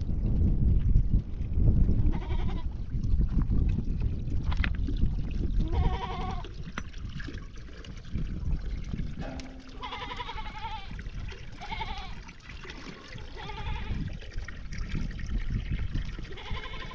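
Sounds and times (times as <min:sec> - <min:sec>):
constant low rumbling: 0:00.0 - 0:12.2
livestock bleating: 0:05.7 - 0:06.4, 0:09.6 - 0:10.9, 0:11.6 - 0:12.2, 0:13.4 - 0:14.0, 0:16.4 - 0:16.9.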